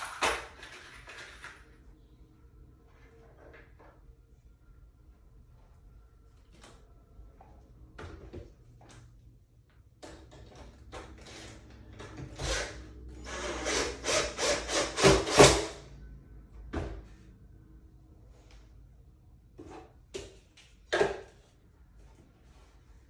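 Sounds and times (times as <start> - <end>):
cordless drill driving a screw: 12.4 - 15.7.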